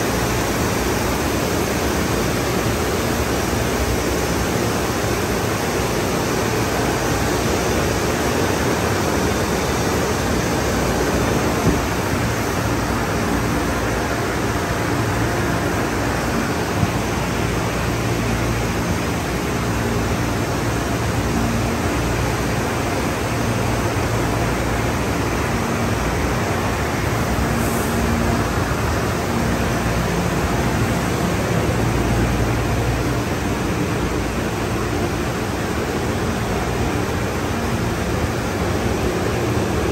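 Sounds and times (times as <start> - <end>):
low machinery hum: 0.0 - 39.9.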